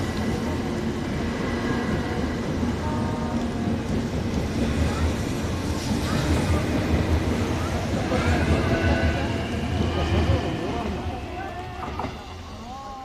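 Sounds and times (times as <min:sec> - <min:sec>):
faint train hum: 0:00.0 - 0:13.0
train rolling past rumbling: 0:00.0 - 0:13.0.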